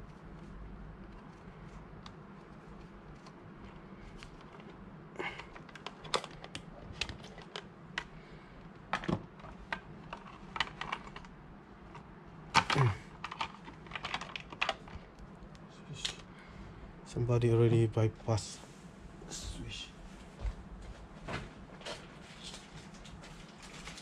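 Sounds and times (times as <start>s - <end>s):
plastic parts clicking: 5.4s - 8.1s, 12.6s - 15.0s.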